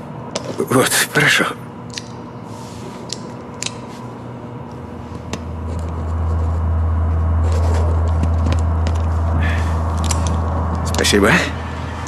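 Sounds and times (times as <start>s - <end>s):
low steady hum: 0.0s - 12.0s
pen and paper rustles: 5.6s - 6.7s, 7.4s - 9.2s.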